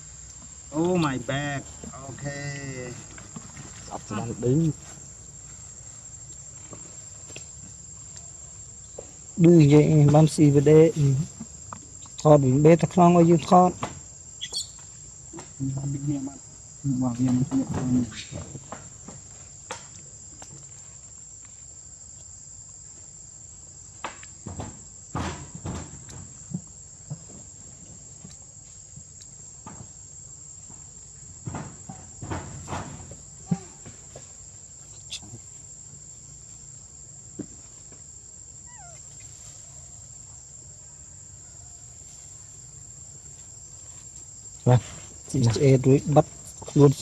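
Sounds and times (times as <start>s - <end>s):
crickets trilling: 0.0s - 47.0s
insects droning: 0.0s - 47.0s
short falling chirp: 14.4s - 14.8s.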